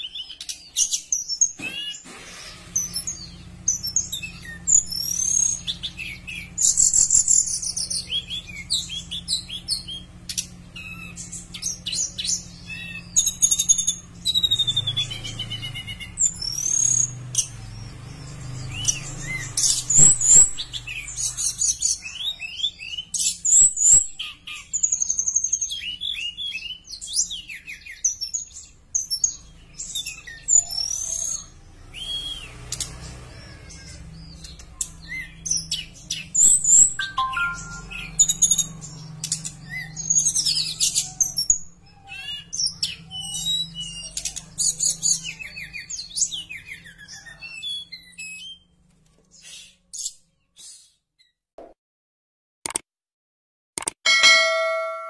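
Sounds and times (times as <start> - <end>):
bird singing whistles and trills: 32.0 - 32.6, 35.1 - 38.7.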